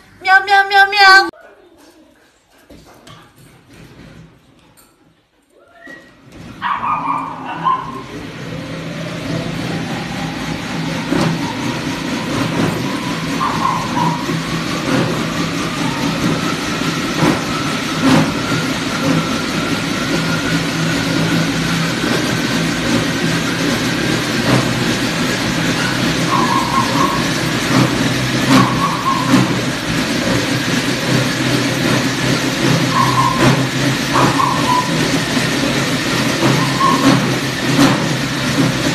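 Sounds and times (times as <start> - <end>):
brief squeals: 5.6 - 7.9, 32.9 - 33.6
rising motor whine: 7.2 - 29.6
wooden treadmill rattling: 9.8 - 38.9.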